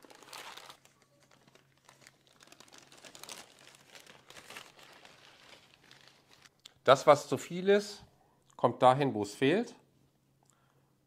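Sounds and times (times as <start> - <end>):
baking paper rustling and crinkling: 0.0 - 6.6.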